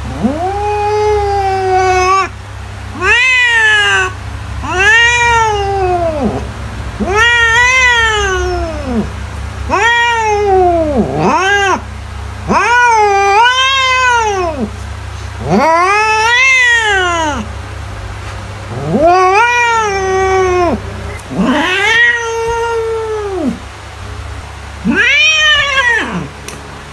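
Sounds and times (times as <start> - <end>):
cat meowing: 0.0 - 2.3, 2.9 - 6.4, 7.0 - 9.1, 9.7 - 11.8, 12.5 - 14.7, 15.4 - 17.5, 18.7 - 23.6, 24.8 - 26.3.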